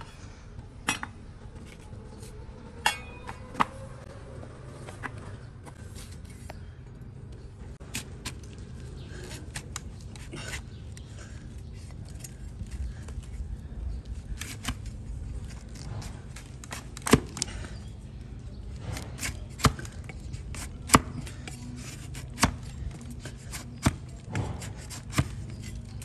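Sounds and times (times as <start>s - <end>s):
shovel cutting hoof on wooden block: 18.8s - 26.0s.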